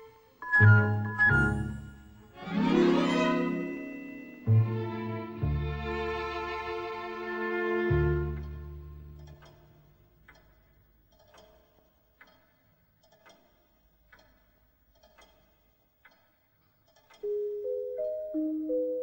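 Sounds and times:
string music: 0.0s - 9.6s
bell-like mallet melody: 0.4s - 6.0s
pendulum clock ticking: 8.1s - 19.0s.

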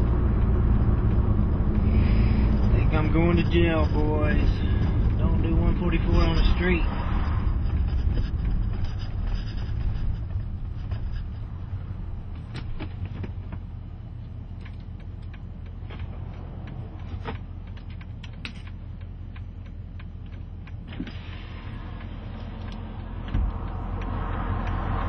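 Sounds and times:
car engine idling: 0.0s - 25.0s
light clicks and rattles: 7.5s - 25.0s.

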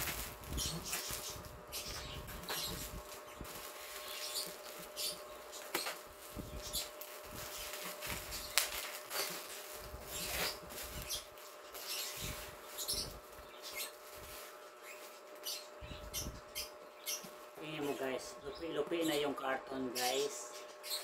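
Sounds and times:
scissors cutting bubble wrap: 0.0s - 15.6s
plastic crinkling and rustling: 0.0s - 16.3s.

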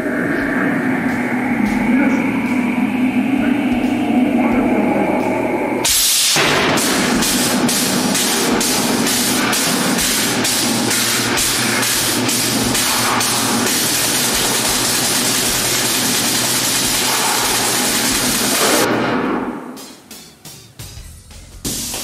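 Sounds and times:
low engine-like hum: 0.0s - 5.9s
loud steady hiss: 5.5s - 18.9s.

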